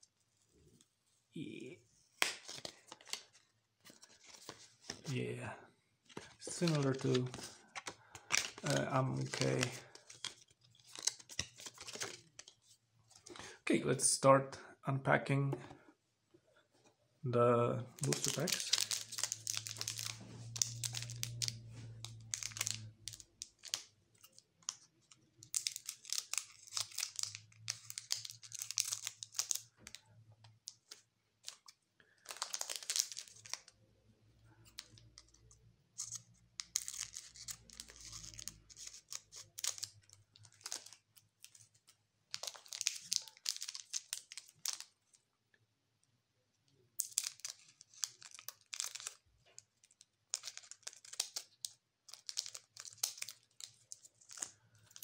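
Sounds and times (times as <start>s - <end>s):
foil wrappers crinkling: 6.1s - 12.4s, 18.0s - 23.8s, 32.2s - 33.6s, 42.4s - 44.8s, 47.0s - 55.0s.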